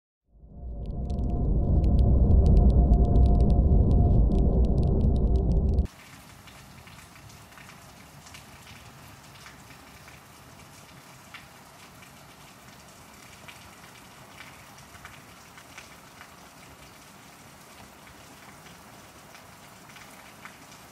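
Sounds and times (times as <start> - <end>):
bass-heavy intro music: 0.4 - 5.9
rain falling steadily: 5.4 - 20.9.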